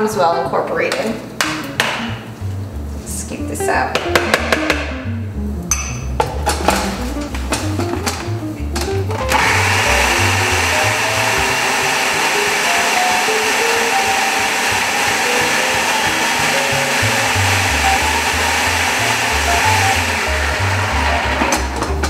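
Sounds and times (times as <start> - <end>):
food processor running: 9.2 - 22.0.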